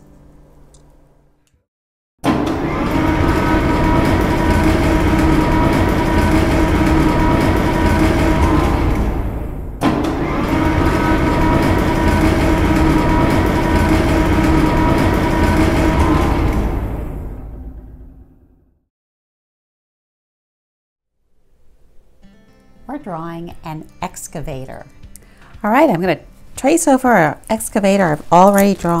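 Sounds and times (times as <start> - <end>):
steady whine: 2.2 - 18.7
excavator diesel engine running: 2.3 - 18.4.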